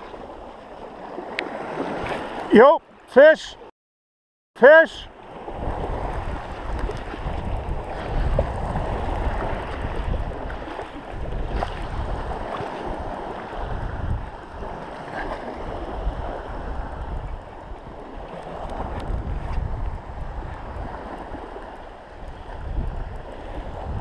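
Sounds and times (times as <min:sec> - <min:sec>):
waves washing in shallow water: 0:00.0 - 0:03.6, 0:04.6 - 0:24.0
wind buffeting microphone: 0:05.3 - 0:24.0.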